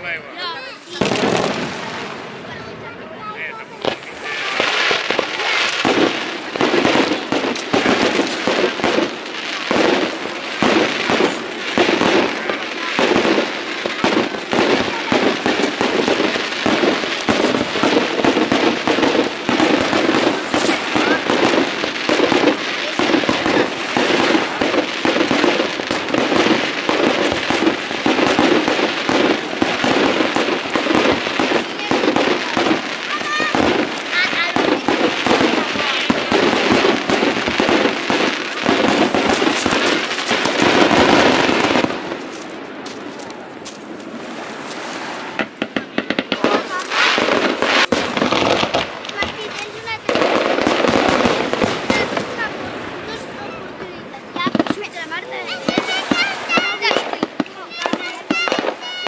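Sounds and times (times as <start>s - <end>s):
fireworks bangs and crackles: 0.0s - 59.0s
rockets going up: 0.0s - 59.0s.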